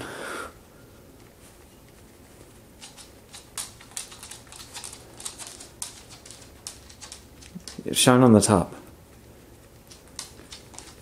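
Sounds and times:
bird clicking and scratching: 1.8 - 8.0, 9.6 - 11.0.

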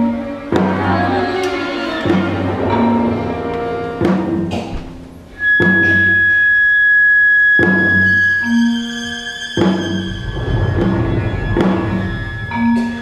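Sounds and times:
chamber ensemble playing chords: 0.0 - 6.0, 10.4 - 13.0
sharp drum strokes: 2.0 - 8.9.

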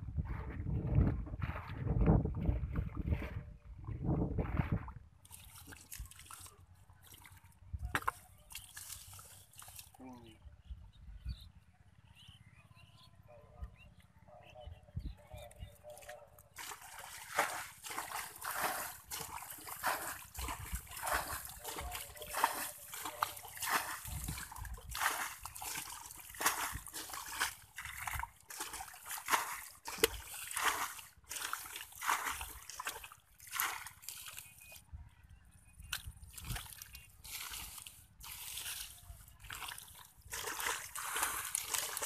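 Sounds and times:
hands splashing in muddy water: 4.4 - 10.0, 15.9 - 34.8, 35.8 - 42.0.

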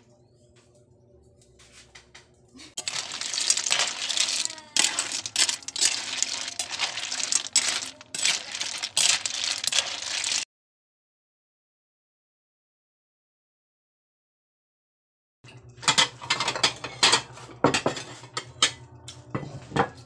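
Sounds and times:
shells clinking in a metal wok: 2.8 - 10.4.

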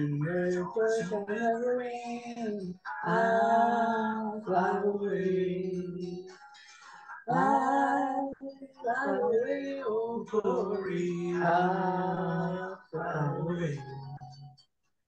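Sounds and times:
woman singing a hymn: 7.3 - 9.5.

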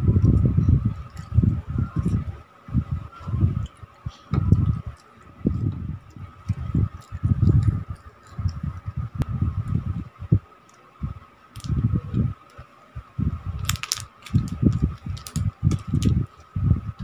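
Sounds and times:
steady high hum: 0.0 - 17.0
low thumps and rumbles: 4.3 - 12.4, 13.0 - 17.0
plastic wrapper crackling: 13.6 - 16.5.

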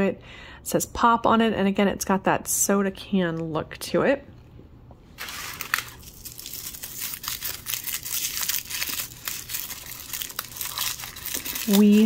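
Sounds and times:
wrapper crinkling: 5.2 - 12.0
wrapper tearing: 5.2 - 12.0.

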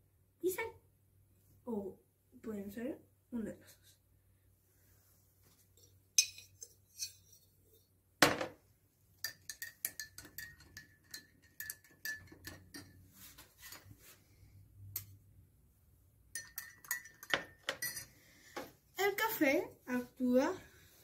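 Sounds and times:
spoon clinking in glass: 6.2 - 7.4, 9.2 - 13.0, 16.3 - 18.1
knock on table: 8.2 - 8.6.

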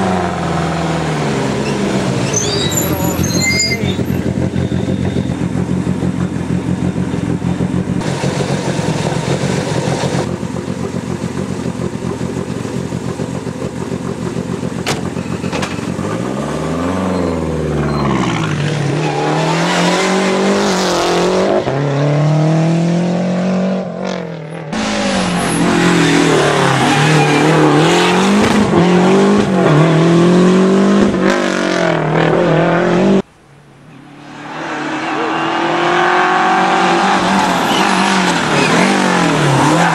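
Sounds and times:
rally car engine accelerating: 13.2 - 33.3.

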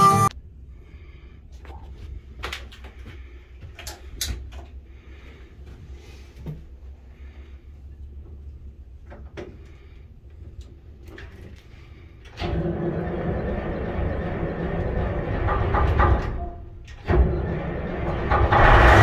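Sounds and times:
boat engine starting and running: 12.3 - 19.0.

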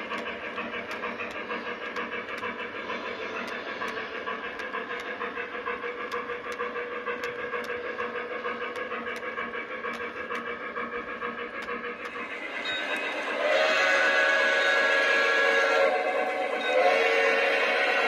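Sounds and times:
sharp clicks: 0.0 - 2.6, 3.4 - 5.3, 6.0 - 9.3
model steam locomotive chuffing: 0.0 - 18.0.

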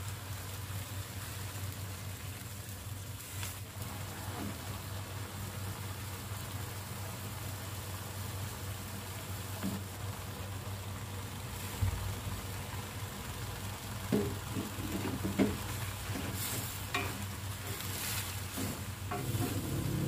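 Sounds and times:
stir-fry sizzling in a wok: 0.0 - 20.0
greens thumping into pan: 14.0 - 19.8
wooden spatula scraping a pan: 14.2 - 20.0.

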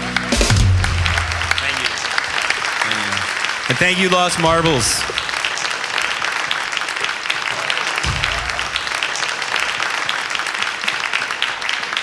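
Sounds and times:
audience applauding: 0.0 - 12.0
low thump: 8.1 - 8.9.

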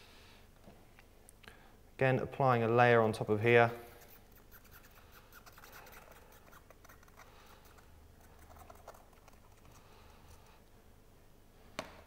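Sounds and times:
glue nozzle scratching: 3.9 - 10.5.

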